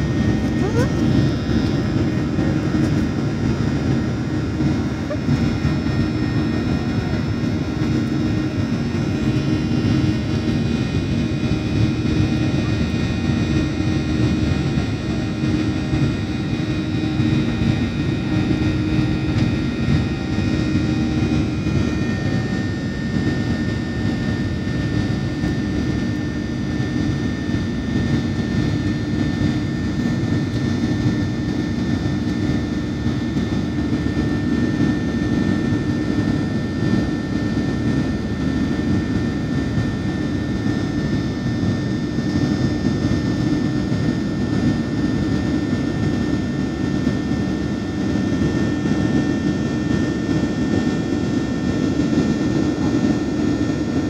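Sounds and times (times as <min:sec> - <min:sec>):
airliner cabin engine drone: 0:00.0 - 0:54.0.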